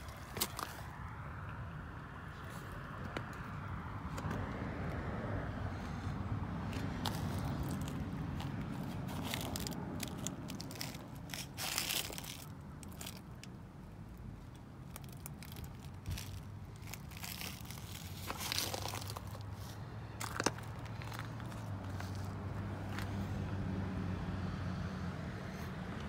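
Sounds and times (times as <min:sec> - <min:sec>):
footsteps crunching: 0:00.0 - 0:00.9, 0:06.8 - 0:13.3, 0:15.0 - 0:23.2.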